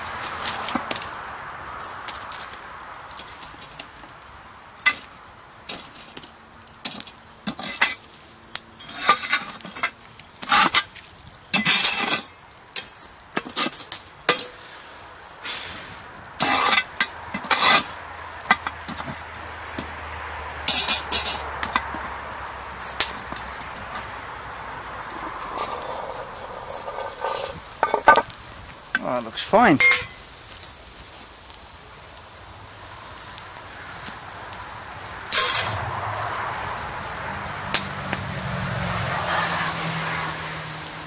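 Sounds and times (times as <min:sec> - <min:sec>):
metal poker scraping iron lid: 0:16.4 - 0:17.9, 0:25.5 - 0:28.3.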